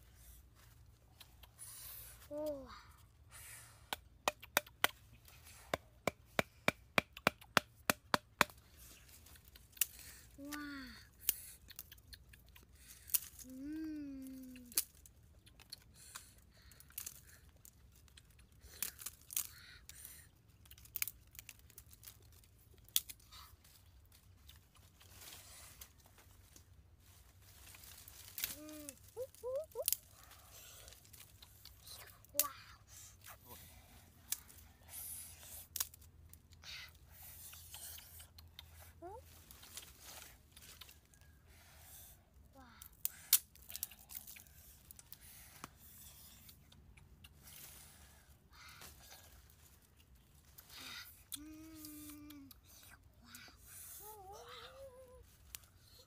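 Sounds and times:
dry sticks cracking and rustling: 5.7s - 33.3s, 35.4s - 38.7s, 39.3s - 41.3s, 42.8s - 52.6s.

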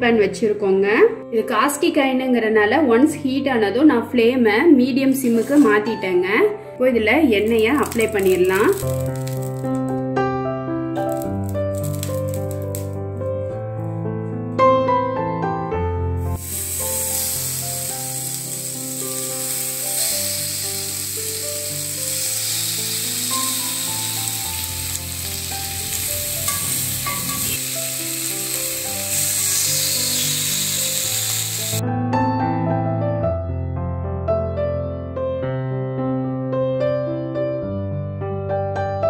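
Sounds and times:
piano music: 0.0s - 39.0s
fish sizzling in oil: 7.4s - 9.8s, 11.0s - 13.0s, 16.3s - 31.8s.

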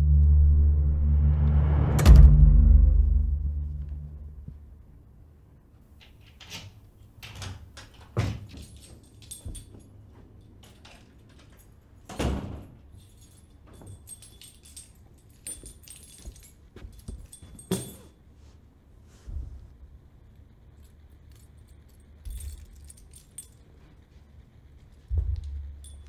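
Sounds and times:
light metallic jangling: 6.1s - 18.3s, 20.2s - 26.0s
knocks and thuds: 25.1s - 25.8s.

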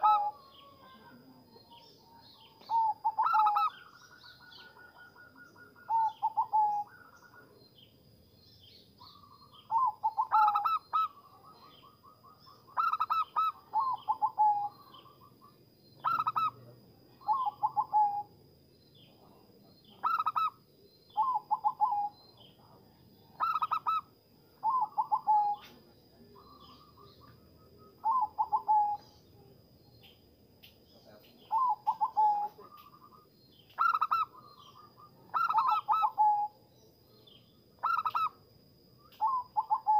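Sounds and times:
dove cooing: 0.0s - 7.6s, 9.1s - 15.2s, 16.0s - 16.6s, 17.2s - 18.3s, 20.0s - 22.2s, 23.4s - 29.2s, 31.5s - 36.6s, 37.8s - 38.4s, 39.2s - 39.9s.

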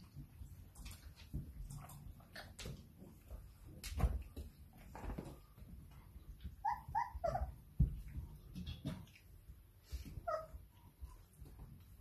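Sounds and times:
puppies scuffling: 0.0s - 12.0s
puppy yelping: 6.4s - 7.7s, 10.2s - 10.8s.

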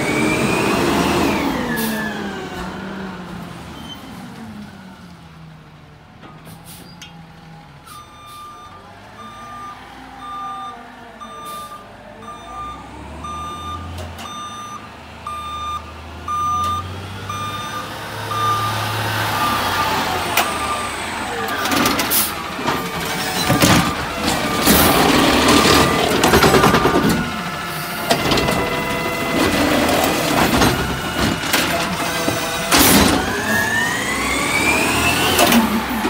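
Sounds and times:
truck engine running low: 4.3s - 36.0s
truck backup alarm beeping: 7.8s - 36.0s.

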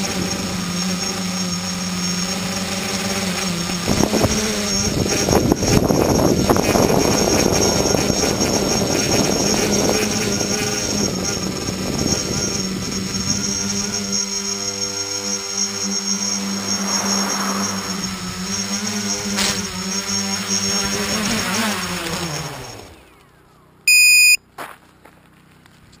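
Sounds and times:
drone motors buzzing: 0.0s - 24.4s
short electronic beep: 23.9s - 24.4s.

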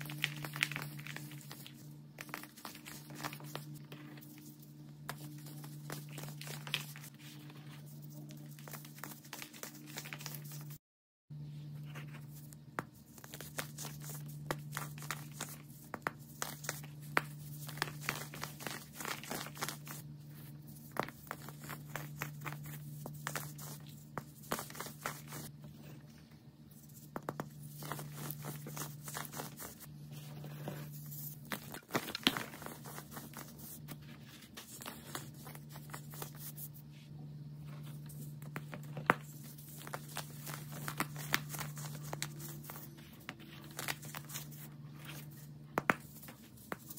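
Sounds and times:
steady low hum: 0.0s - 46.9s.

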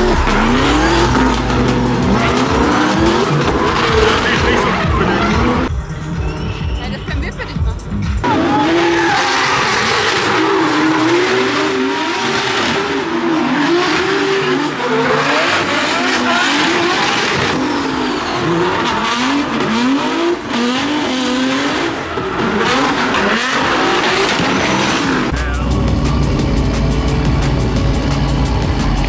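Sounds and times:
tyres screeching: 0.0s - 7.5s
car engines revving: 0.0s - 29.0s.

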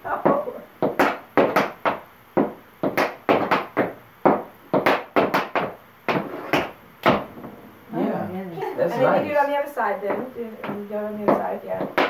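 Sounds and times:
tap shoes on dance board: 0.1s - 7.3s, 10.0s - 12.0s.

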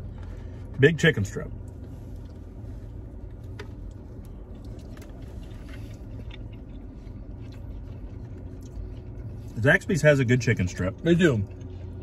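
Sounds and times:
car cabin hum: 0.0s - 12.0s
person chewing food: 1.6s - 9.6s, 10.9s - 12.0s.

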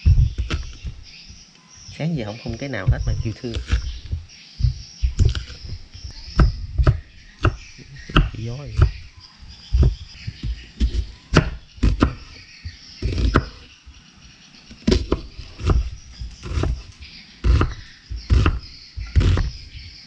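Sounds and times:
knife chopping on wooden board: 0.0s - 1.0s, 2.8s - 9.1s, 9.7s - 12.4s, 13.0s - 13.7s, 14.7s - 19.7s.

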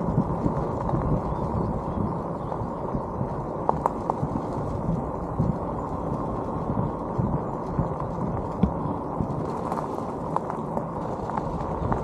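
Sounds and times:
tyres crunching over gravel: 0.0s - 12.0s
wheels knocking over stones: 3.3s - 12.0s.

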